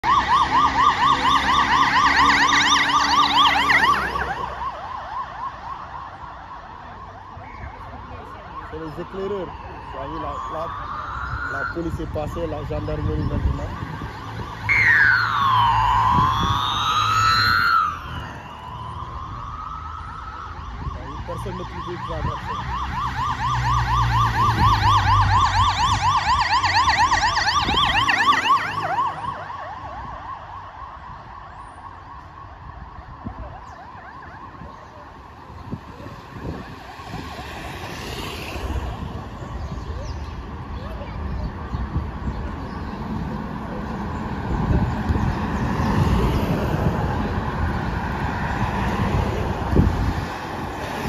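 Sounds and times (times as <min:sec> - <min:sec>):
siren wailing: 0:00.0 - 0:40.0
siren yelping: 0:00.0 - 0:40.3.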